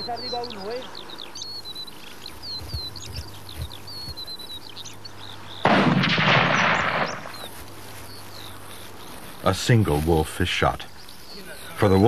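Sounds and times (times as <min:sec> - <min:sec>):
birds chirping: 0:00.0 - 0:12.0
loud gunshot: 0:05.6 - 0:07.4.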